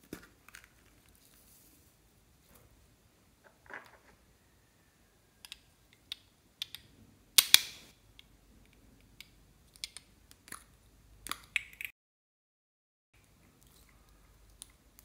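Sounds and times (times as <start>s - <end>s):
plastic tubes clicking and tapping: 5.4s - 11.9s.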